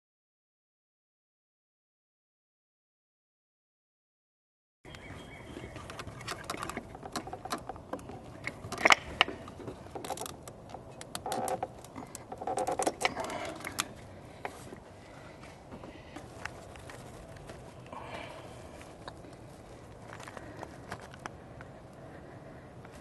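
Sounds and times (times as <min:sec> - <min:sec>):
rubbing and rustling: 0:05.6 - 0:17.8
plastic clicks and knocks: 0:05.8 - 0:13.9.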